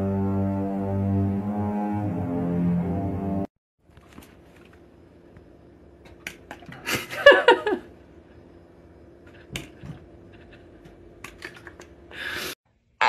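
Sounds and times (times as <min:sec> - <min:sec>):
steady low hum: 0:03.9 - 0:12.4.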